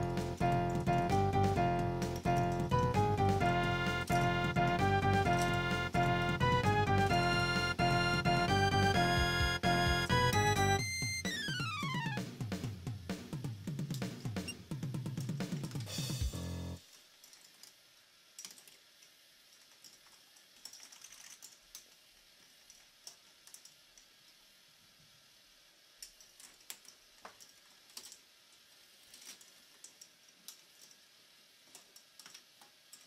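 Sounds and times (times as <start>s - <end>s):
plastic balls clicking on tracks: 17.2s - 24.2s.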